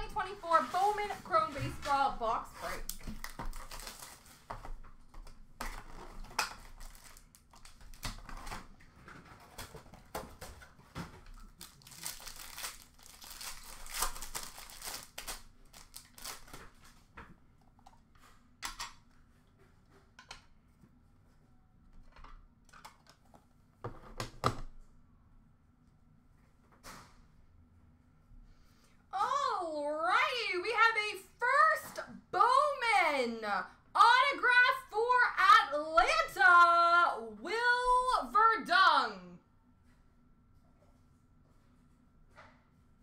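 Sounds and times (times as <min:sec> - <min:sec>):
foil packs crinkling: 0:02.6 - 0:04.8, 0:05.6 - 0:08.7, 0:11.4 - 0:17.0.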